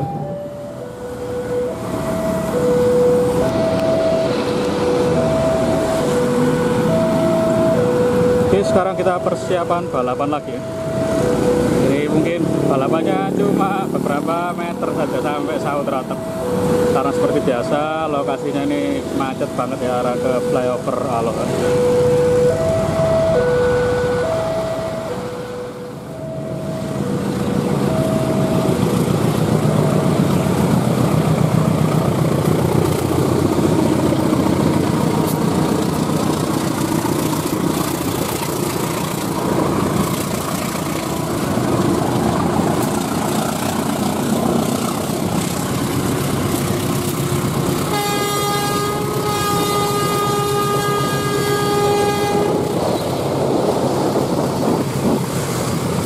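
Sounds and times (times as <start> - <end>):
two-note electronic beeping: 0.0 - 28.9
locomotive engine rumble: 0.0 - 56.0
road traffic noise: 0.0 - 56.0
locomotive horn blast: 46.9 - 53.2.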